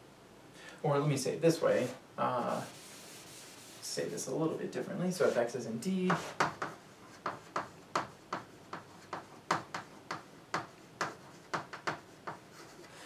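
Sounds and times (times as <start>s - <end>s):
chalk tapping on a chalkboard: 6.1s - 12.9s.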